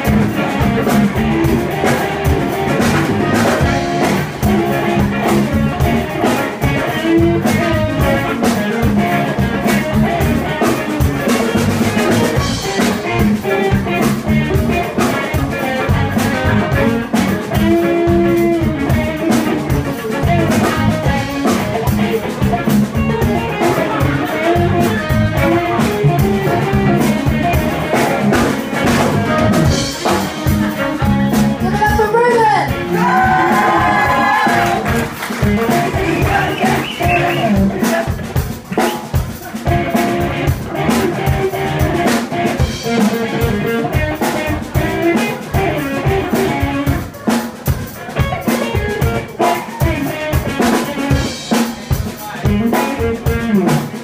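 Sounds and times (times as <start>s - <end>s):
bass guitar: 0.0s - 54.0s
drum kit beat: 0.0s - 54.0s
electric guitars: 0.0s - 54.0s.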